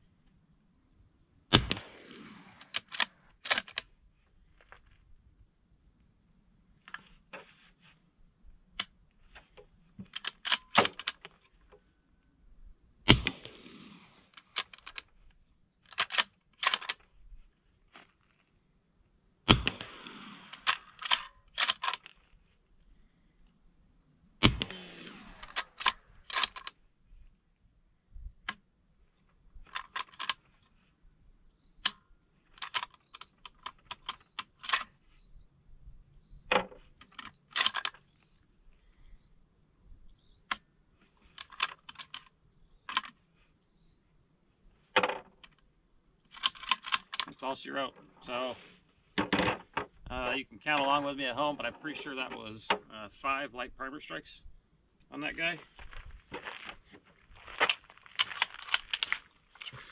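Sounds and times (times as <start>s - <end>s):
suppressed gunshots: 1.5s - 3.3s, 13.1s - 14.6s, 19.5s - 21.3s, 24.4s - 26.2s
metallic clicks of bolt action: 10.0s - 11.4s, 20.5s - 22.1s, 25.4s - 26.8s.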